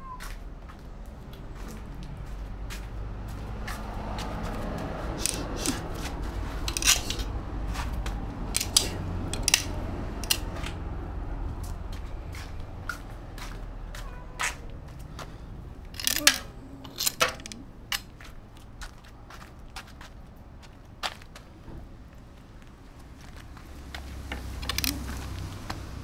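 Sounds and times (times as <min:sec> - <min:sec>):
steady low rumble: 0:00.8 - 0:14.0
sharp clicks: 0:08.0 - 0:10.8, 0:24.3 - 0:25.2.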